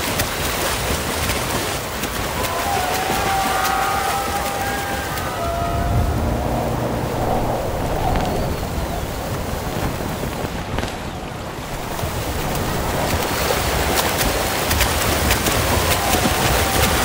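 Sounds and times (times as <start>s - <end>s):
swimmers splashing: 0.0s - 7.5s, 11.5s - 17.0s
drone propellers and wind rushing: 4.1s - 17.0s.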